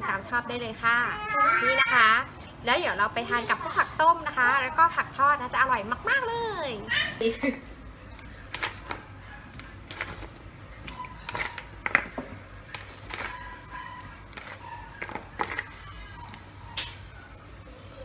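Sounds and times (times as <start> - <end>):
pot boiling on stove: 7.4 - 18.0.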